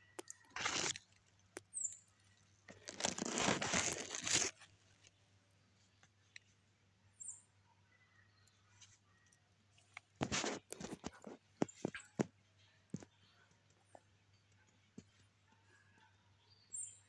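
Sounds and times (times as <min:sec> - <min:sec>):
leaves and straw rustling: 0:00.2 - 0:01.2, 0:02.7 - 0:05.1.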